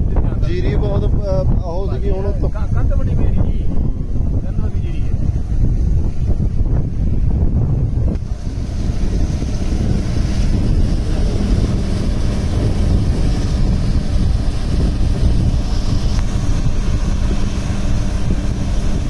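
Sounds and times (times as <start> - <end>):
wind buffeting microphone: 0.0 - 19.0
tractor engine running: 5.7 - 19.0.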